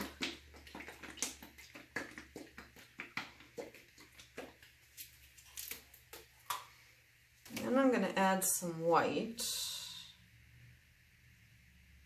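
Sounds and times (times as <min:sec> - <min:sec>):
plastic cups clicking and knocking: 0:00.0 - 0:06.7
low steady hum: 0:00.0 - 0:12.0.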